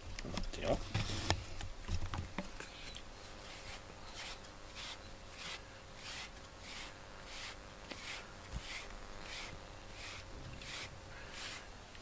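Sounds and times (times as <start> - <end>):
brush through cat fur: 3.4 - 11.7.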